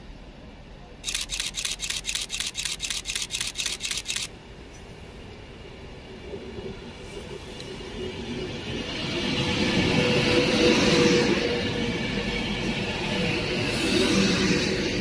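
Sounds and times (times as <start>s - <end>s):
electric train drawing in: 0.0s - 15.0s
sharp clicks: 1.0s - 4.3s.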